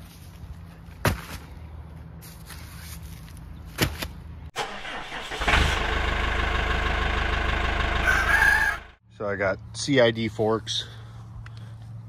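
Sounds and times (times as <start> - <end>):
tractor engine idling: 4.6 - 9.0.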